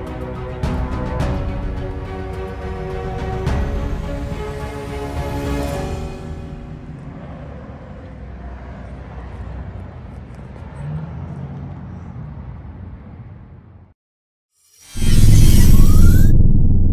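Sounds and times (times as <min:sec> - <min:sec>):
low rumble of traffic: 0:05.8 - 0:14.0.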